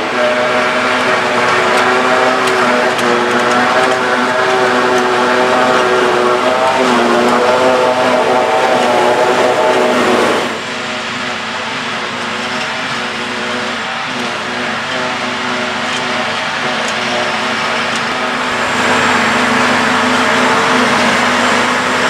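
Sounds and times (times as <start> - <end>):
forage harvester humming: 0.0 - 22.0.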